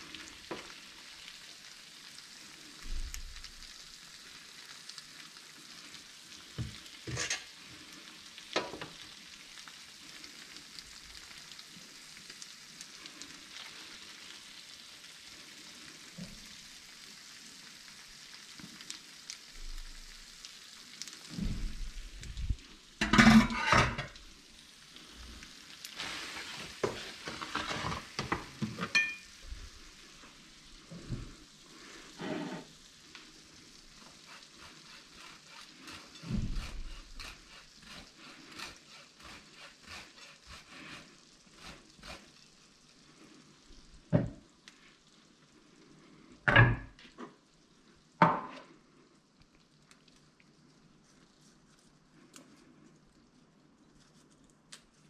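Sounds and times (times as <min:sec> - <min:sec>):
pasta sizzling in a frying pan: 0:00.0 - 0:55.0
utensils scraping a pan: 0:07.1 - 0:07.6, 0:23.0 - 0:24.2, 0:26.0 - 0:29.2, 0:32.1 - 0:32.7, 0:34.2 - 0:42.2.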